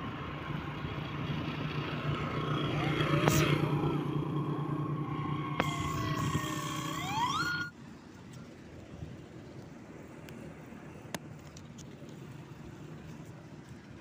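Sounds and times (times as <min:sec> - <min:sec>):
vehicle engine humming and revving: 0:00.0 - 0:07.7
wind and road noise: 0:00.0 - 0:14.0.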